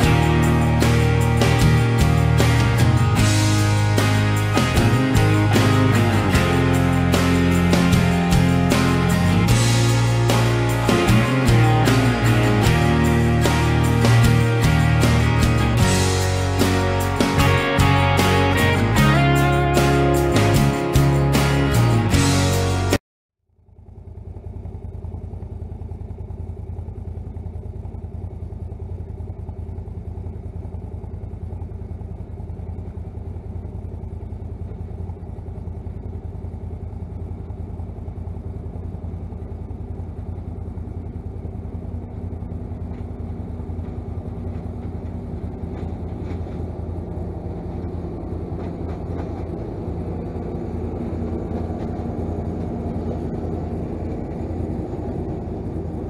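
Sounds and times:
tractor engine drone: 0.0s - 56.0s.

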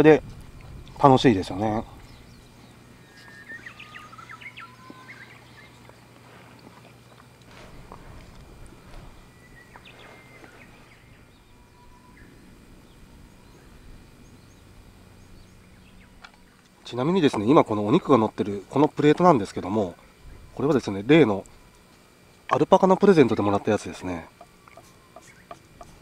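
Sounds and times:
outdoor background noise: 0.0s - 26.0s
birds chirping and whistling: 1.7s - 6.0s, 7.0s - 16.8s, 20.0s - 21.0s, 24.5s - 26.0s.

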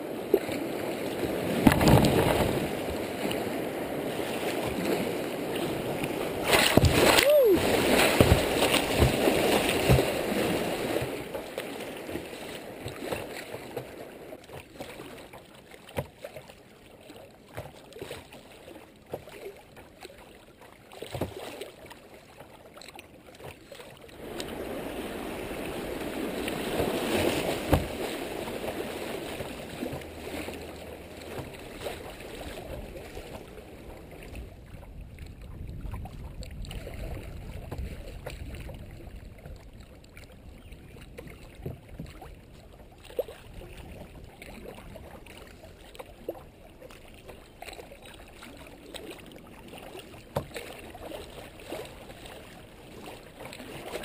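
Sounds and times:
creek water rushing and splashing: 0.0s - 54.0s
water slapping against camera: 1.4s - 3.4s, 4.4s - 16.5s, 25.5s - 34.4s, 43.1s - 54.0s.

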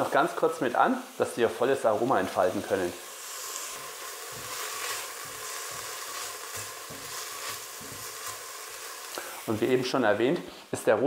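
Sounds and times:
food sizzling in hot fat: 0.0s - 11.0s
spatula scraping a pot: 3.1s - 9.1s.

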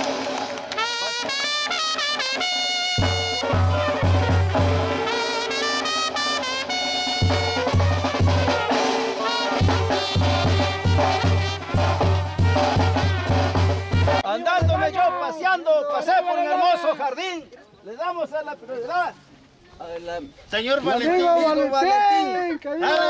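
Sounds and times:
brass instrumental music: 0.0s - 15.3s
bass drum beat: 2.3s - 15.1s.

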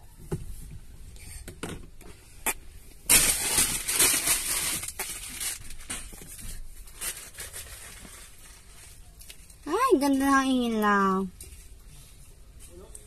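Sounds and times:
rustling and scraping: 3.1s - 10.3s.

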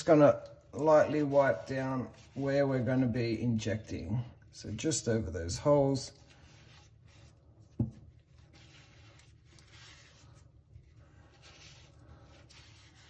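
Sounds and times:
paper towel rubbing metal lids: 5.9s - 13.0s.

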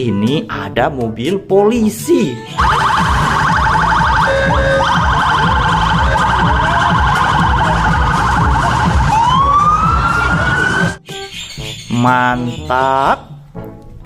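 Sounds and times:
police siren: 2.5s - 11.0s
low traffic rumble: 2.6s - 11.0s.

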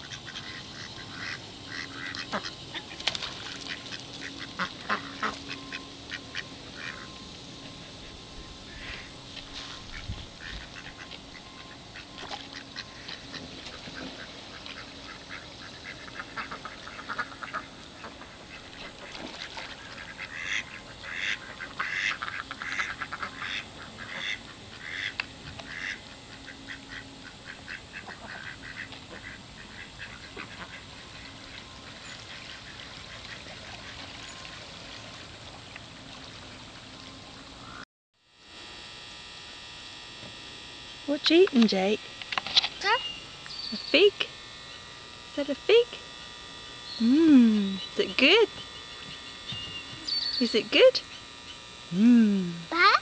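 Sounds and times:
ducks quacking: 0.0s - 36.1s.

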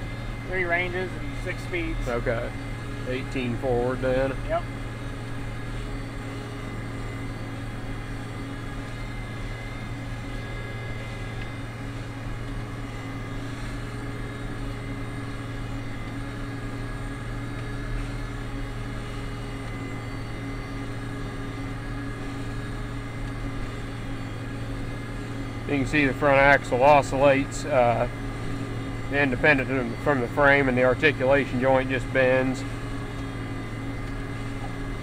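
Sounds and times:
tractor diesel engine drone: 0.0s - 35.0s.

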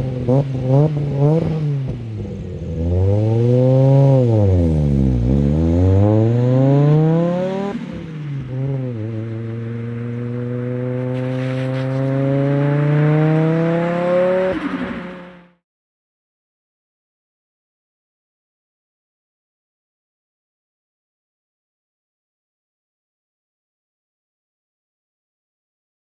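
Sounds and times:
car engine accelerating hard: 0.0s - 15.6s.

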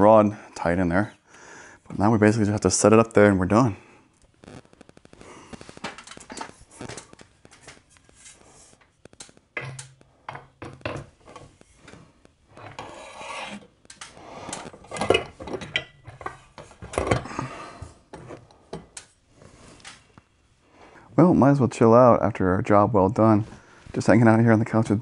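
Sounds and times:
curtain rod scraping and knocking: 9.6s - 17.2s.

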